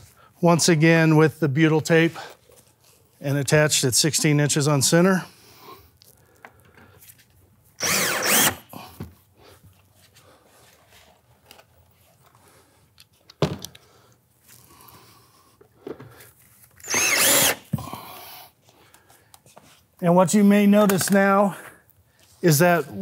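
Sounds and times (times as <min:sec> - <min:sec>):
cordless drill whining: 0:07.8 - 0:08.9, 0:16.8 - 0:17.9.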